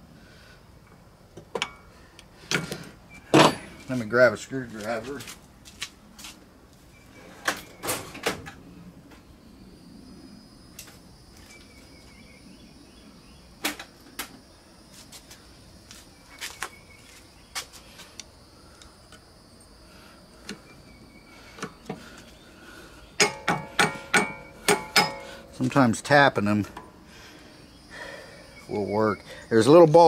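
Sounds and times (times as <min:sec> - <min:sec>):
ringing metallic taps: 0:23.2 - 0:25.5.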